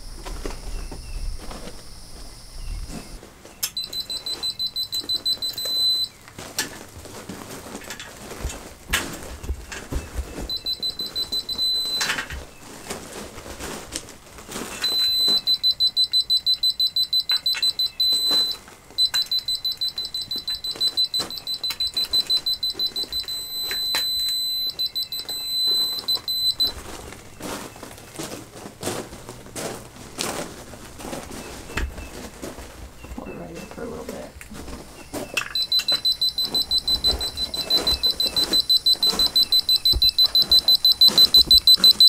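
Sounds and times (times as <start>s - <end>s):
high-pitched fast beeping: 0.0s - 6.1s, 10.5s - 12.2s, 14.8s - 26.8s, 35.4s - 42.0s
short steady tones: 0.0s - 6.2s, 10.5s - 12.3s, 14.8s - 26.8s, 35.4s - 42.0s.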